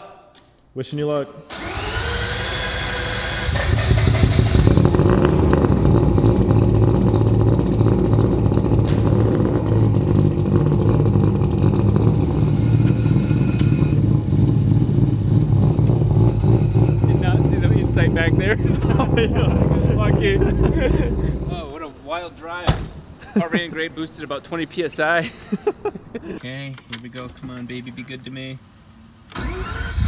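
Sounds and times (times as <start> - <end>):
rotary engine idling loudly: 1.6 - 21.5.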